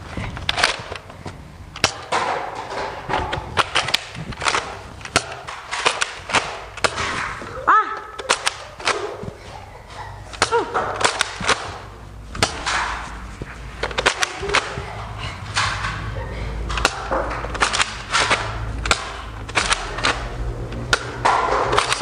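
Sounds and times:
foam dart blasters firing: 0:03.5 - 0:09.2, 0:10.4 - 0:13.2, 0:13.9 - 0:15.9.

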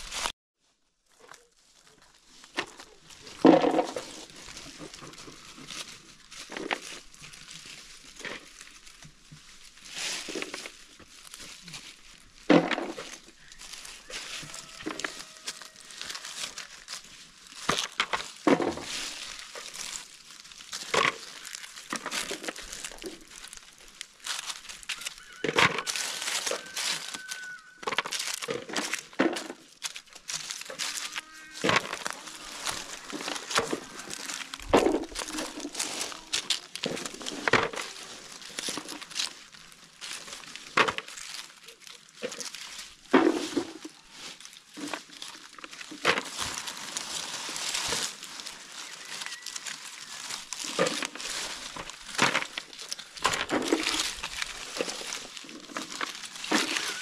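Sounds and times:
dry leaves rustling: 0:00.0 - 0:57.0
acorns clicking into buckets: 0:12.4 - 0:57.0.

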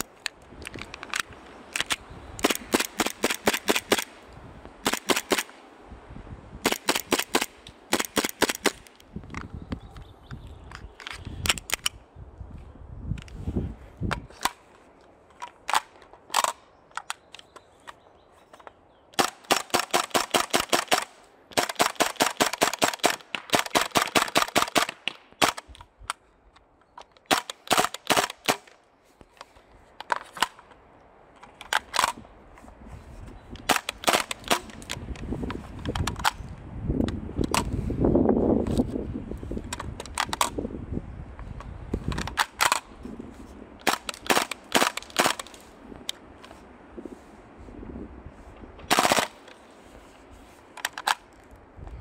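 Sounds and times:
airsoft gun full-auto firing: 0:48.9 - 0:49.4.

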